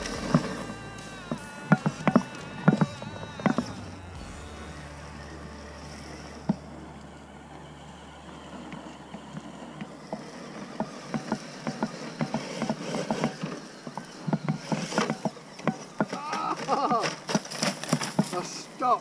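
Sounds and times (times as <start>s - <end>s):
low steady rumble: 0.0s - 11.1s
small dry crunches and clicks: 8.5s - 18.6s.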